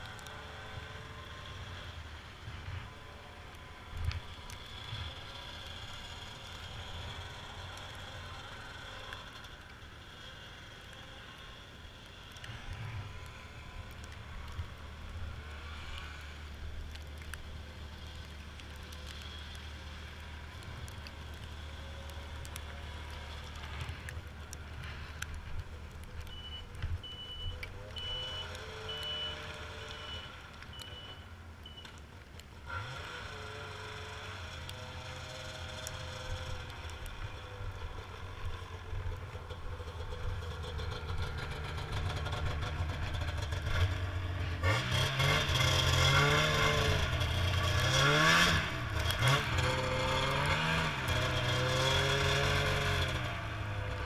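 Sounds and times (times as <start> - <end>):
snowmobile engine running: 32.7 - 54.0.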